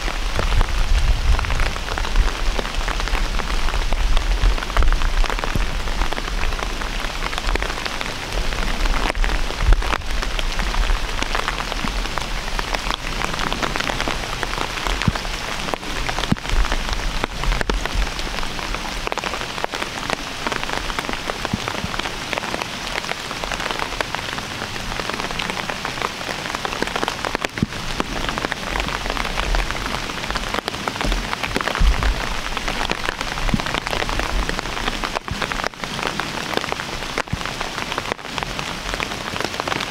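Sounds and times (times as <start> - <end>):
rain dripping on branches and leaves: 0.0 - 39.9
low rumbles: 27.8 - 35.2.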